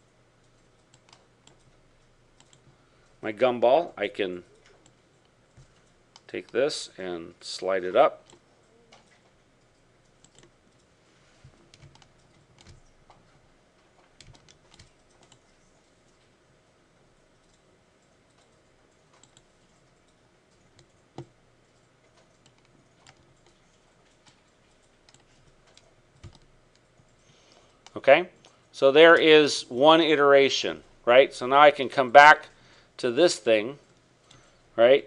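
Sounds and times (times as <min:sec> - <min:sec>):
keyboard and mouse clicks: 0:00.4 - 0:01.8, 0:02.4 - 0:02.8, 0:08.2 - 0:16.3, 0:17.4 - 0:28.6.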